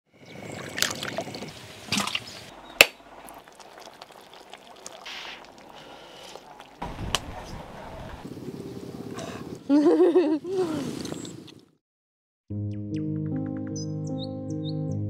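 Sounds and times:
water pouring and sloshing: 0.3s - 6.8s
steady hiss: 5.0s - 7.7s.

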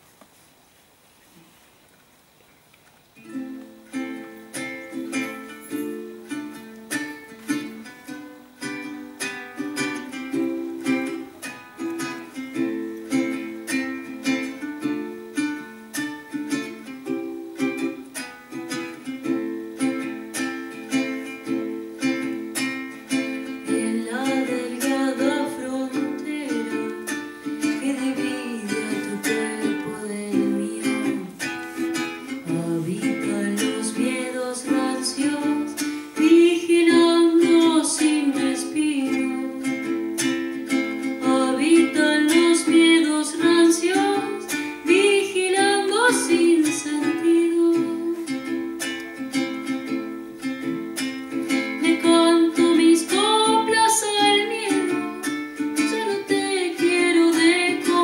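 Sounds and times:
acoustic guitar plucked notes: 3.2s - 58.0s
woman singing: 23.2s - 31.6s, 32.3s - 40.3s, 41.0s - 48.7s, 51.6s - 58.0s.

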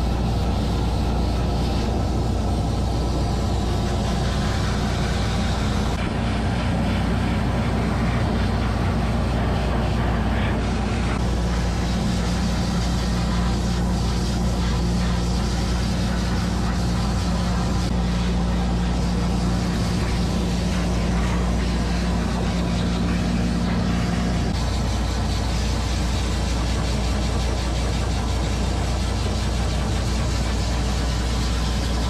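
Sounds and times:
pet grooming dryer running: 0.0s - 32.0s.

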